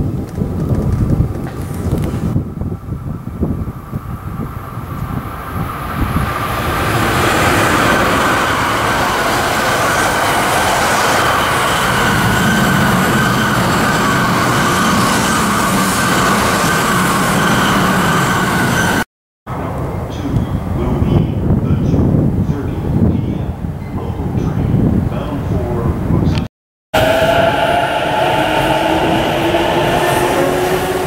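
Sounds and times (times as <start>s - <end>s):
wind on the microphone: 0.0s - 12.3s, 19.5s - 31.0s
high-speed train passing: 0.0s - 21.6s, 27.0s - 31.0s.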